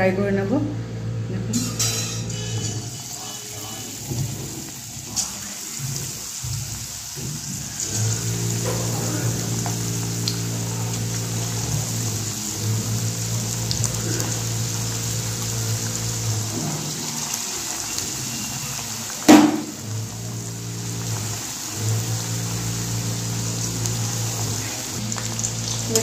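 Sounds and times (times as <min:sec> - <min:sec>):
oil sizzling while deep-frying: 0:01.6 - 0:26.0
sharp knock: 0:19.3 - 0:19.8.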